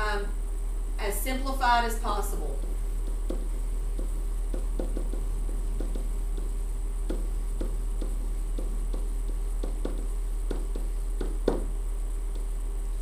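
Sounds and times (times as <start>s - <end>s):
steady hum: 0.0s - 13.0s
marker squeaking on whiteboard: 2.6s - 11.6s.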